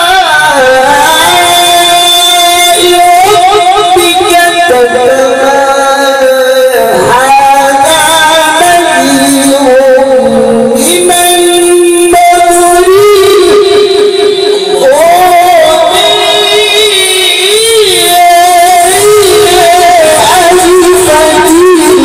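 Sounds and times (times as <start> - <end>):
man chanting into microphone: 0.0 - 22.0.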